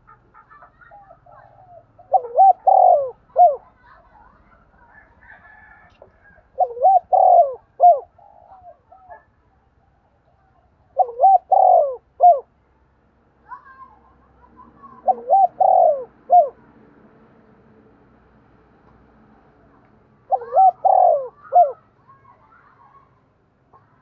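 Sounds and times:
dove cooing: 0.9s - 3.7s, 6.3s - 9.3s, 10.9s - 12.5s, 14.8s - 16.6s, 20.3s - 21.8s.

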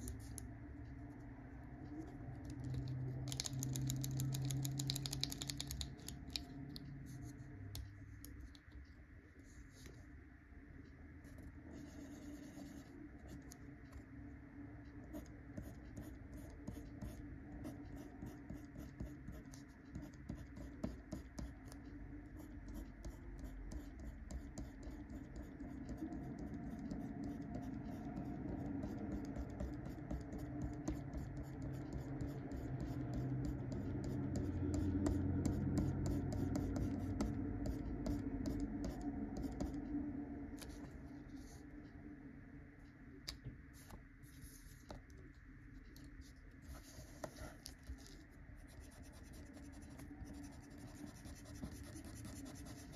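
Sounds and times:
pencil scratching on paper: 11.7s - 12.9s, 22.4s - 39.8s, 46.2s - 52.9s.

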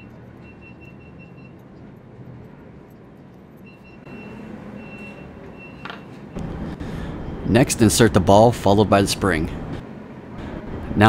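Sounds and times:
rapid high-pitched beeping: 0.0s - 1.8s, 3.5s - 5.8s
engine rumble: 0.0s - 11.0s.

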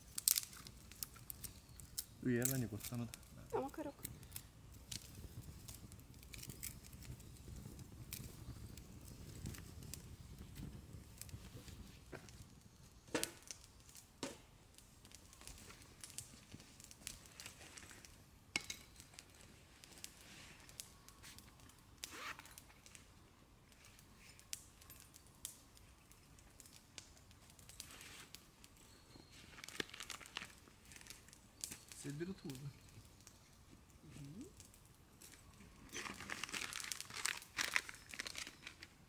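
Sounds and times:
crinkling rustles: 0.0s - 14.0s, 14.8s - 39.0s.

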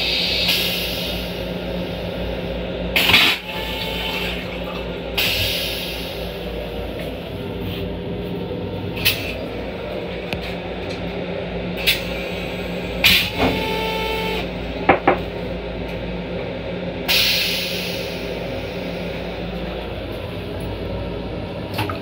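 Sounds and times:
steady low hum: 0.0s - 22.0s
toilet flush hiss: 5.2s - 6.4s.

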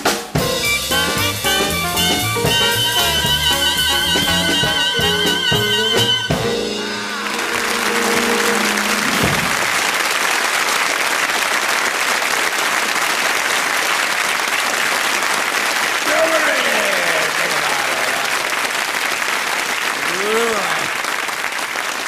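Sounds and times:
swing jazz band playing: 0.0s - 10.1s
studio audience applause: 1.7s - 22.0s.

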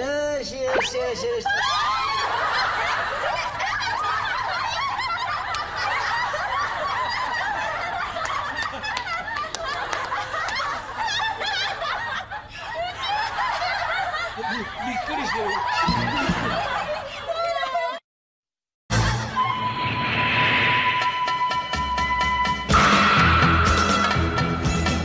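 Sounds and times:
audience laughter: 1.3s - 18.0s.

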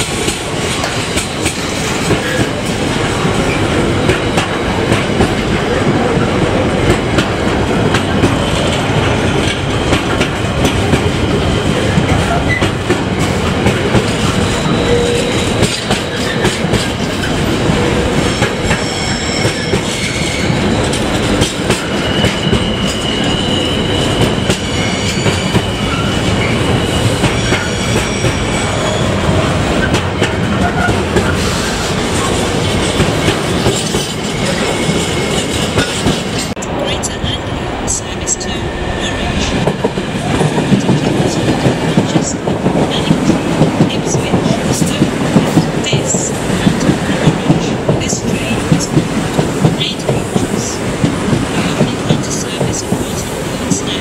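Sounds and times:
train wheels clattering: 0.0s - 36.6s
high wheel squeals: 18.7s - 20.6s, 21.8s - 29.2s.

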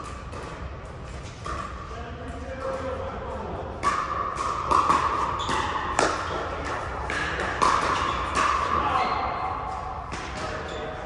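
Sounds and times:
paddles hitting plastic ball: 3.8s - 8.7s.

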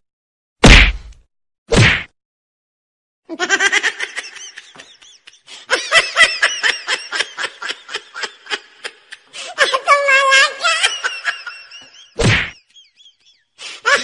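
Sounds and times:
person laughing: 3.3s - 14.0s.

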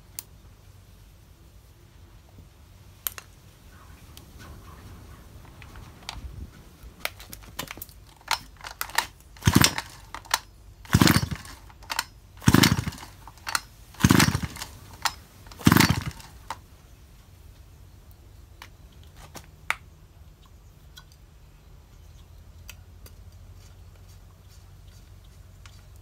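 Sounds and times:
chainsaw recoil starter pulls: 7.0s - 16.6s.

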